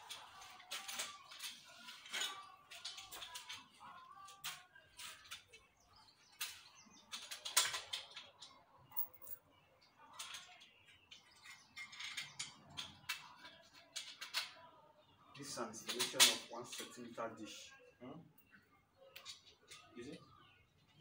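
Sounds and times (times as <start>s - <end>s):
metal parts clicking and rattling: 0.0s - 9.4s, 10.0s - 14.6s, 15.4s - 17.0s, 19.1s - 19.9s.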